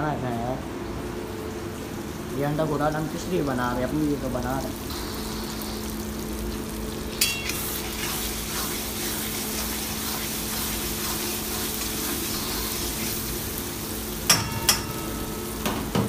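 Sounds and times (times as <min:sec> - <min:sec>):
steady low hum: 0:00.0 - 0:16.0
food sizzling in a wok: 0:03.4 - 0:15.9
metal spatula clinking on pan: 0:07.2 - 0:07.6, 0:14.3 - 0:15.8.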